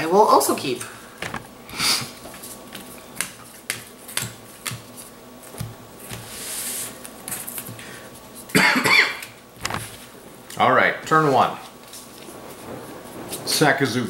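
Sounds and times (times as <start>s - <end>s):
cards sliding across mat: 5.0s - 8.5s.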